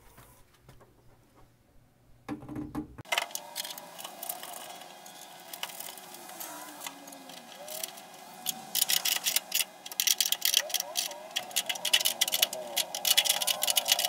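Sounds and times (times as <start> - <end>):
hardware clicks and metal clatter: 3.1 - 14.0.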